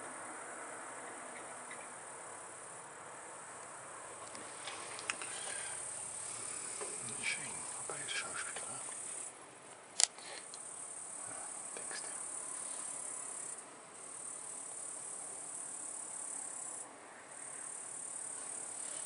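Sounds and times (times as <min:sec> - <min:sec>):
crickets trilling: 0:00.0 - 0:19.0
sharp click: 0:10.0 - 0:10.6.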